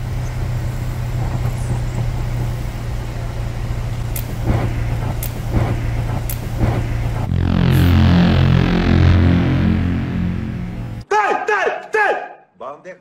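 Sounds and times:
pickup engine idling: 0:00.0 - 0:08.1.

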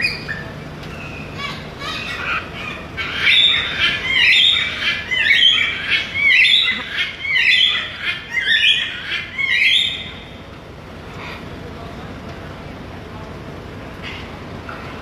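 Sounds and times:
macaw squawking: 0:00.0 - 0:10.2.

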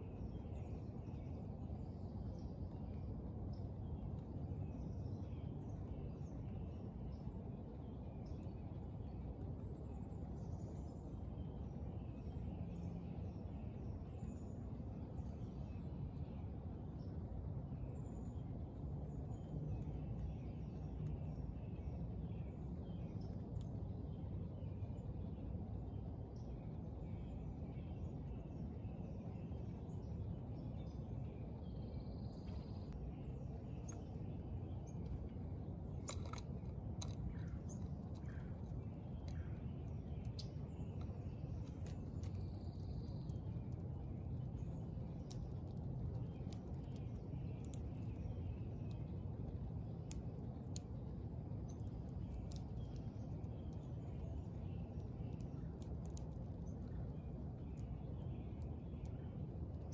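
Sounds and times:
low outdoor rumble: 0:00.0 - 0:59.9
songbird chirps: 0:00.0 - 0:59.9
birds tapping at seed feeder: 0:33.7 - 0:59.9.

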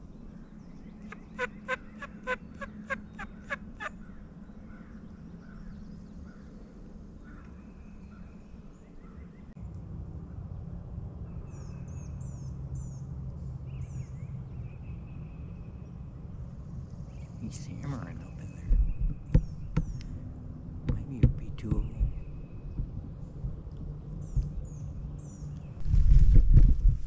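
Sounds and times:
songbirds chirping: 0:00.0 - 0:09.6, 0:11.2 - 0:25.8
turkey gobbling: 0:01.1 - 0:04.0.

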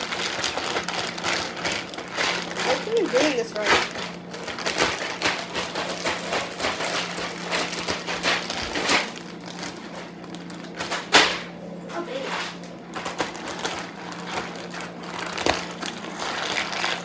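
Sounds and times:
plastic bag of ice shaken: 0:00.0 - 0:11.2, 0:12.1 - 0:17.0
steady low hum: 0:00.0 - 0:17.0.

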